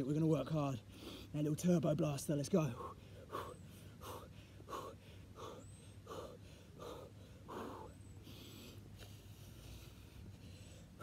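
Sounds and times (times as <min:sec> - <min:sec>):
man breathing hard: 0:00.9 - 0:01.4, 0:02.7 - 0:11.0.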